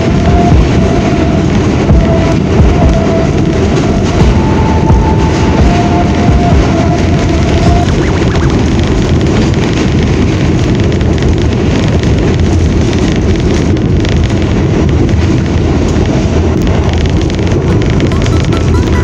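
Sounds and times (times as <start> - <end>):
subway train wheels rumbling: 0.0 - 19.0.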